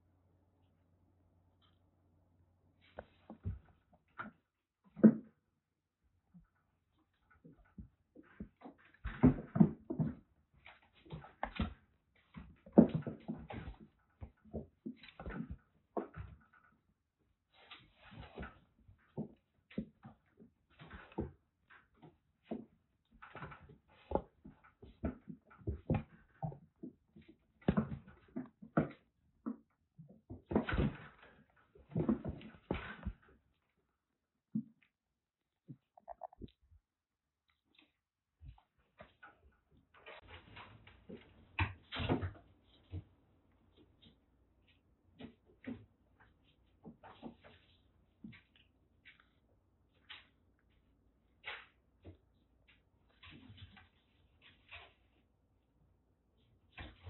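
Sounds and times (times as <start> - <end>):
kittens scuffling and thumping: 6.4 - 33.7, 37.6 - 55.6, 56.4 - 57.0.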